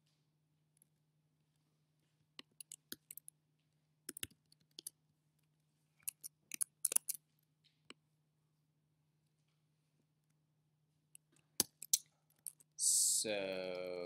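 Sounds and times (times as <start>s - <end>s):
computer mouse and key clicks: 2.4s - 3.3s, 4.1s - 5.0s, 6.0s - 7.2s
faint low hum: 12.8s - 14.0s.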